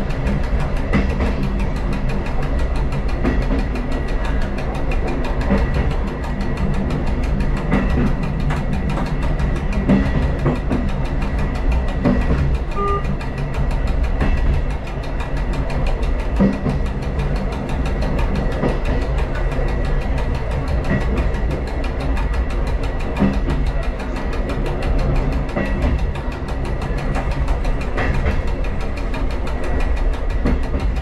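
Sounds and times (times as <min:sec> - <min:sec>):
railcar rumbling on track: 0:00.0 - 0:31.0
short tone: 0:12.8 - 0:13.1.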